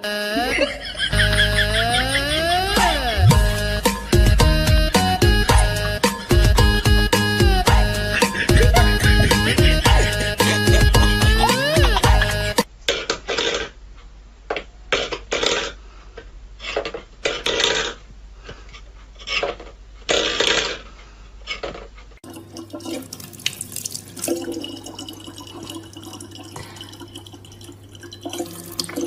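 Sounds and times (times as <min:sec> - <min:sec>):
water running from faucet: 0:22.2 - 0:29.0.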